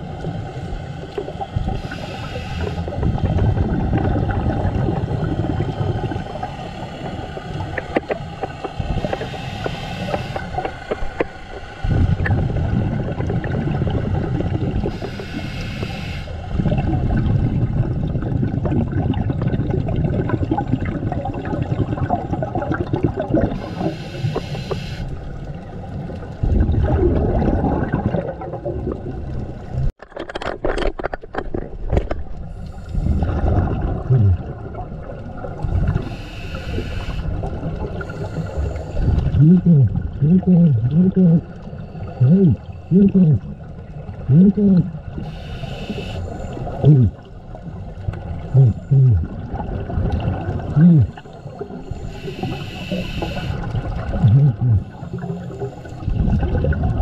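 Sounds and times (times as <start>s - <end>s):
regulator hiss on inhale: 1.7s - 3.0s, 9.0s - 11.8s, 14.9s - 16.5s, 23.6s - 25.2s, 32.5s - 33.3s, 35.9s - 37.3s, 38.0s - 39.1s, 45.2s - 46.8s, 51.1s - 53.7s, 54.8s - 56.1s
gurgling exhaust bubbles: 2.9s - 8.1s, 11.8s - 15.0s, 16.5s - 23.7s, 25.8s - 29.9s, 32.9s - 36.1s, 37.3s - 45.3s, 46.5s - 52.7s, 53.3s - 57.0s.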